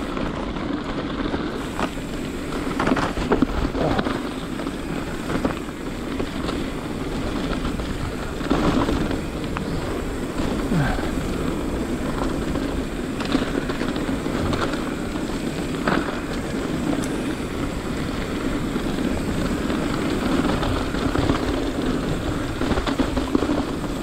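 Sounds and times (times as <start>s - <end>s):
bike clicks and rattles: 0.0s - 24.0s
wind and tyre noise: 0.0s - 24.0s.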